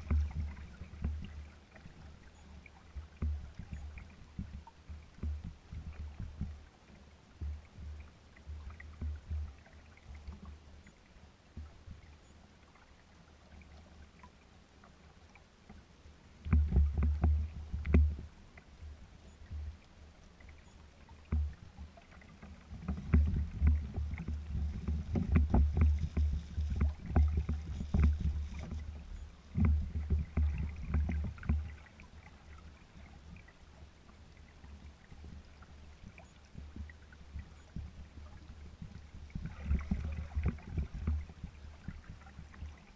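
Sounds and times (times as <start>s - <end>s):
waves splashing against a hull: 0.0s - 42.9s.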